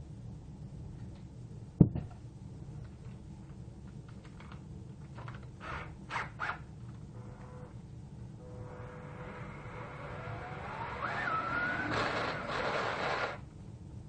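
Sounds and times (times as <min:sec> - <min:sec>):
rasping squeaks: 0:08.6 - 0:13.4.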